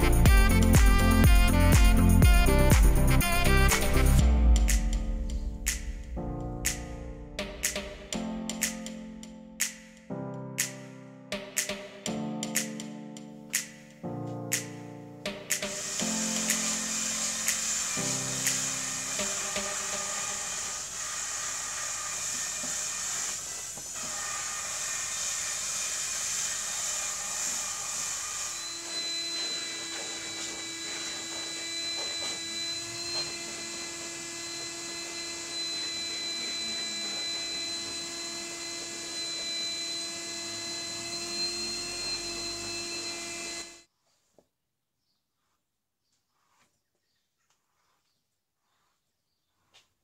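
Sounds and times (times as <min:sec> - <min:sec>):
shop vacuum running: 0:00.0 - 0:04.3, 0:15.5 - 0:43.9
vacuum nozzle on carpet mat: 0:15.6 - 0:44.3.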